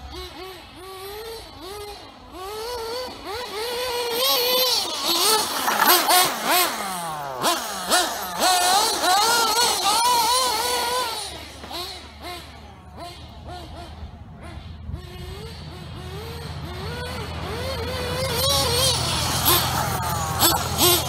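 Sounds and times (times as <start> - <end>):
rc car motor revving: 0.0 - 21.0.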